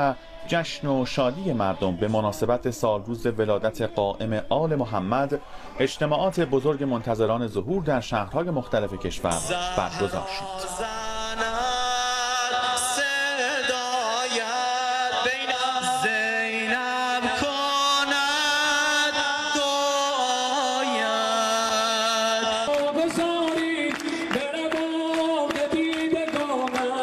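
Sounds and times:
person singing religious chant: 0.0 - 27.0
hands clapping in rhythm: 22.3 - 27.0.

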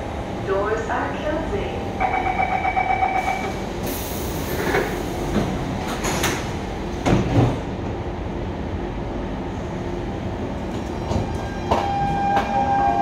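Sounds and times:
standing train rumble: 0.0 - 13.0
train doors sliding shut: 3.2 - 8.0, 10.6 - 13.0.

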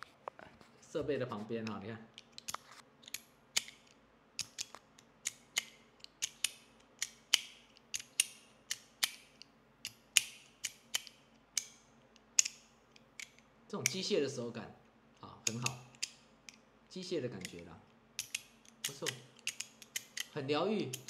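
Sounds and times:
metal slider toy clicking: 2.2 - 11.8, 15.4 - 16.6, 17.4 - 21.0.

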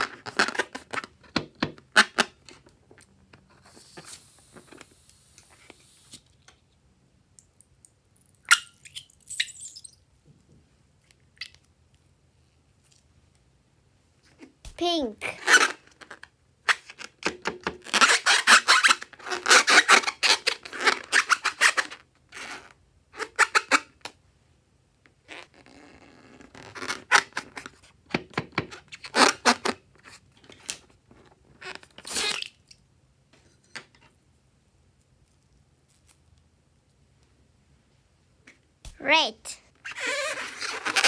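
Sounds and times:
balloon handling sounds: 0.0 - 2.7, 14.4 - 22.7, 38.9 - 41.0.

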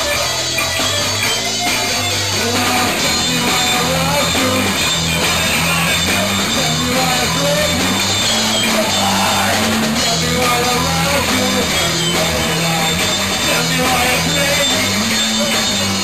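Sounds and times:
drum kit with cymbals: 0.0 - 16.0
electric guitar: 0.0 - 16.0.

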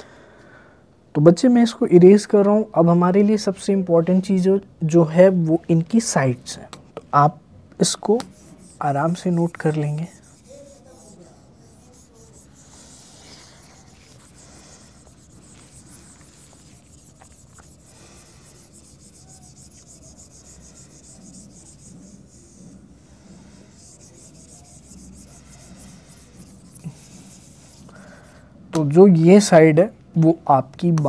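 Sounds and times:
eraser rubbing on paper: 7.9 - 28.4.

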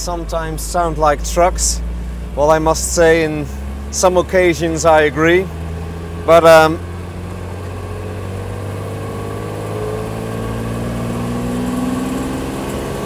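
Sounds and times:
car engine accelerating: 0.0 - 13.0.

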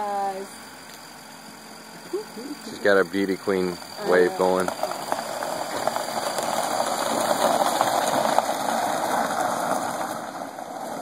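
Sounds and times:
tyres crunching over gravel: 2.9 - 11.0.

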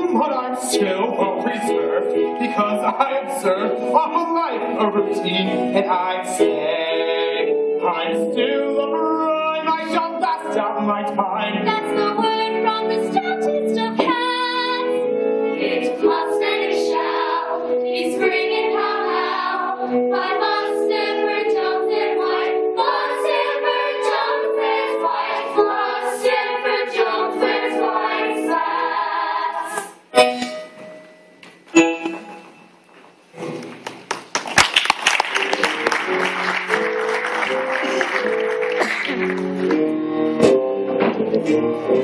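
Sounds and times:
cast singing with accompaniment: 0.6 - 30.1
audience applause: 33.6 - 39.7.

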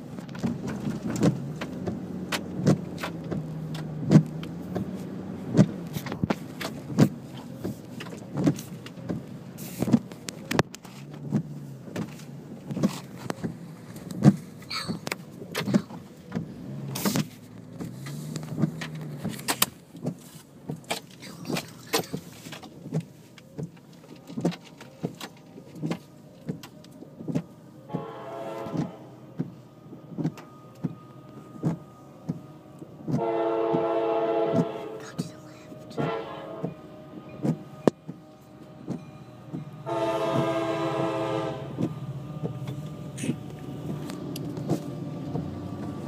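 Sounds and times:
train horn blowing: 27.9 - 29.2, 32.0 - 35.2, 35.9 - 41.9.

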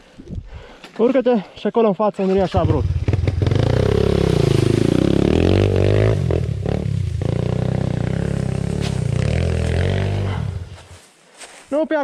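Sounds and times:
dirt bike engine revving: 2.2 - 10.8.

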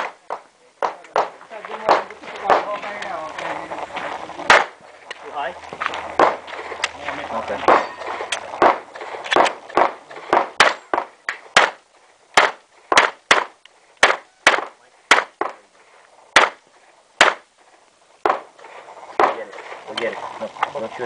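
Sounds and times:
pistol shots: 4.5 - 4.8, 6.2 - 6.4, 8.6 - 11.8, 12.4 - 15.6, 16.4 - 16.6, 17.2 - 17.4.

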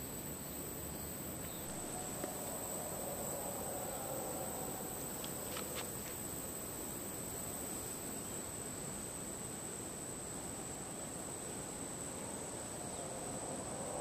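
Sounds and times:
forest hiss: 0.0 - 14.0
insects droning: 0.0 - 14.0
faint ticks: 5.0 - 6.2.

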